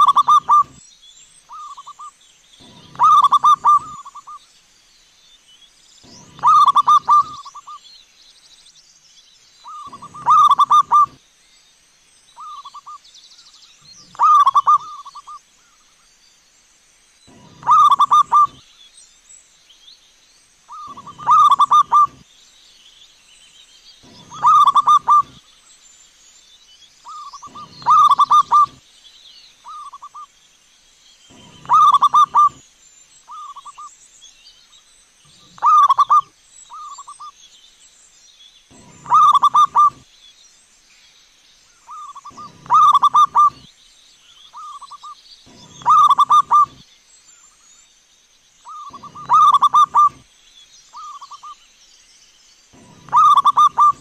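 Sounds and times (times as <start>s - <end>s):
dove cooing: 0.0s - 0.8s, 2.6s - 4.4s, 6.1s - 7.8s, 9.7s - 11.2s, 14.1s - 15.3s, 17.3s - 18.6s, 20.7s - 22.2s, 24.0s - 25.4s, 27.1s - 28.8s, 31.3s - 32.6s, 35.4s - 36.3s, 38.7s - 40.0s, 41.9s - 43.7s, 45.5s - 46.8s, 48.7s - 50.2s, 52.8s - 54.0s.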